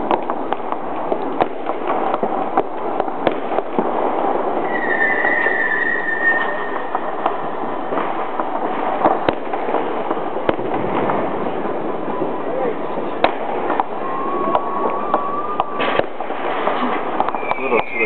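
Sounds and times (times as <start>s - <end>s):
crackle of distant firecrackers: 0.0s - 18.0s
firework bangs: 0.0s - 18.0s
high falling firework whistle: 4.6s - 7.6s, 13.8s - 18.0s.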